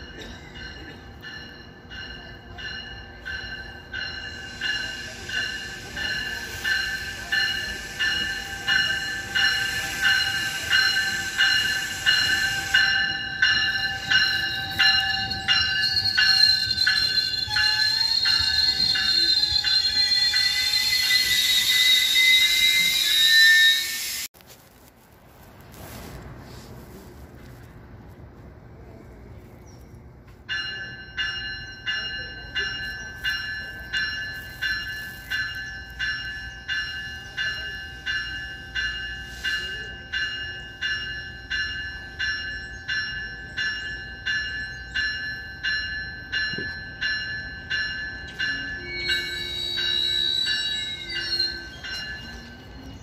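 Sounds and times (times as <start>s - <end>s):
train bell ringing: 0.0s - 24.3s, 30.2s - 53.0s
high squeal: 14.2s - 24.3s, 48.9s - 53.0s.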